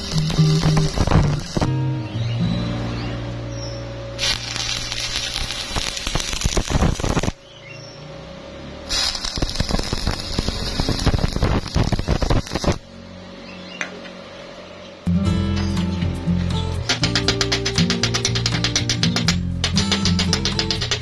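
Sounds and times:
welding arc crackling: 0:00.0 - 0:01.7, 0:04.2 - 0:07.4, 0:08.9 - 0:12.9, 0:16.8 - 0:21.0.

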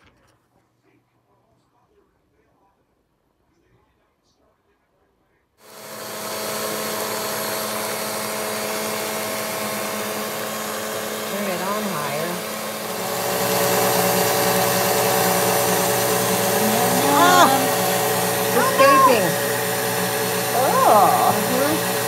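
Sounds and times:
electric stand mixer running: 0:05.7 - 0:18.6, 0:19.2 - 0:22.0.

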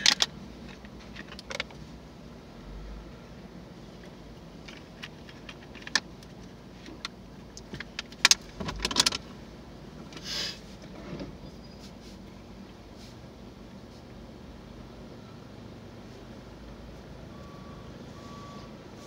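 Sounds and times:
car engine running: 0:00.0 - 0:19.0
short hiss: 0:10.2 - 0:10.8.

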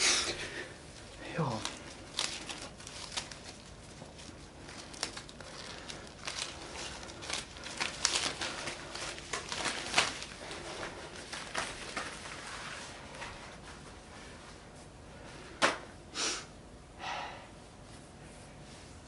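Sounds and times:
cloth rustling: 0:00.8 - 0:14.8.

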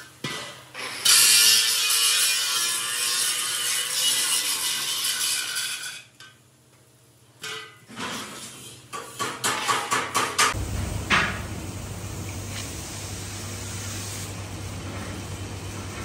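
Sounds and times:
steady low hum: 0:10.5 - 0:16.0.

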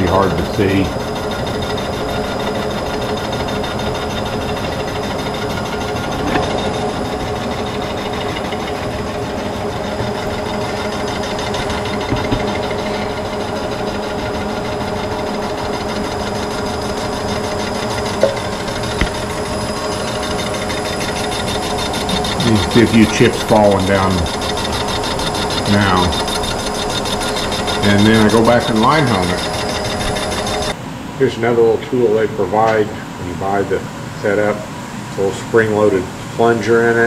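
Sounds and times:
milling machine hum: 0:00.0 - 0:37.0.

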